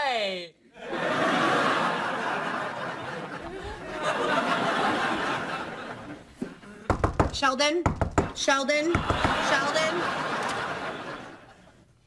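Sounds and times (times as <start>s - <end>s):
studio audience laughing: 0.8s - 6.9s, 8.9s - 11.9s.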